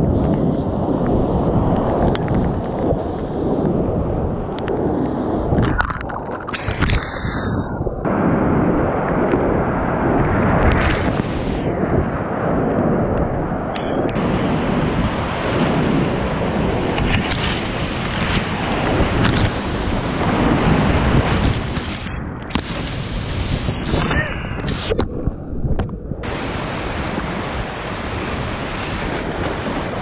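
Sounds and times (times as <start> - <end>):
whitewater rushing: 14.1 - 24.5, 26.2 - 30.0
paddle splashes: 14.2 - 23.0, 26.2 - 30.0.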